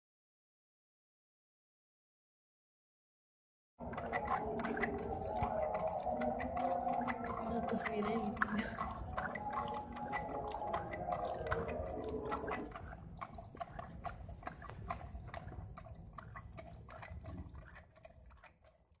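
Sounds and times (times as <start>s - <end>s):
water gurgling and splashing: 3.8s - 19.0s.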